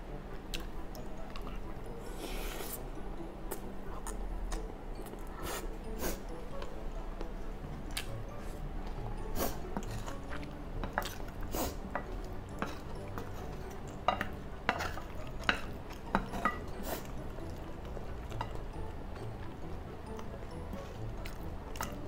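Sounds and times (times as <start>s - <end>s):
chewing: 0.5s - 2.3s, 3.5s - 6.7s, 9.4s - 22.0s.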